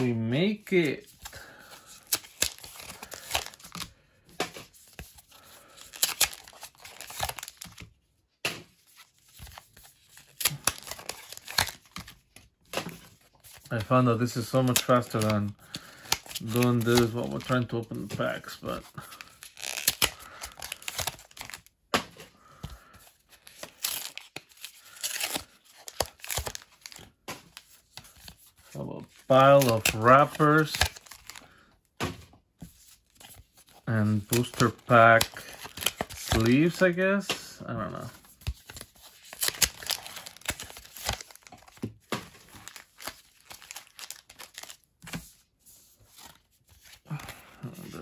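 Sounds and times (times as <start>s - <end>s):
wrappers tearing and crinkling: 1.3s - 3.8s, 5.4s - 7.8s, 9.5s - 12.1s, 13.6s - 17.8s, 18.4s - 21.7s, 23.3s - 27.1s, 29.3s - 31.4s, 34.2s - 36.9s, 37.9s - 44.9s.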